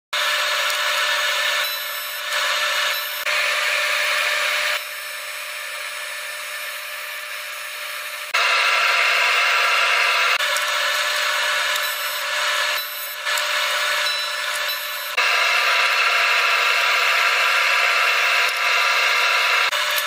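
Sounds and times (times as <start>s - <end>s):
welding arc hiss and buzz: 0.2s - 20.0s.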